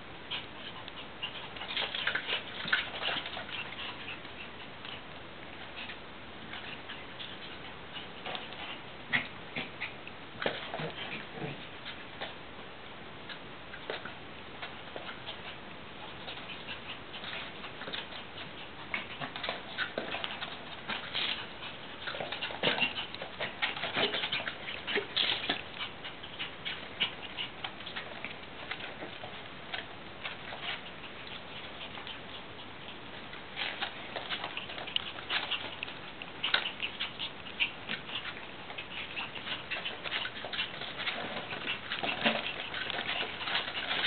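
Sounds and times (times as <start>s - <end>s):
paws and claws clicking: 0.2s - 12.4s, 13.3s - 44.0s.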